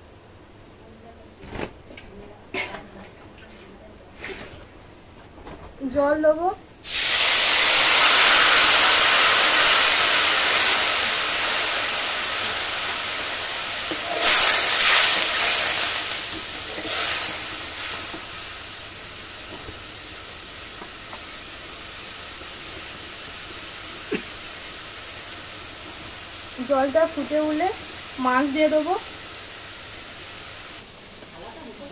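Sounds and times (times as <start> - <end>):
water hissing in hot oil: 6.8 - 31.9.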